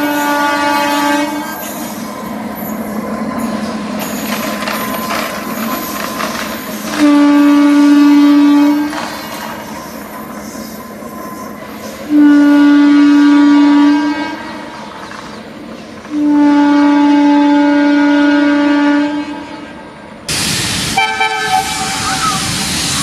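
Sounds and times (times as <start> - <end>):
locomotive air horn blasts: 0.0 - 1.8, 6.9 - 9.5, 12.1 - 14.8, 16.1 - 19.8, 20.9 - 22.2
locomotive engine rumble: 0.0 - 23.0
loud rushing noise: 20.3 - 23.0.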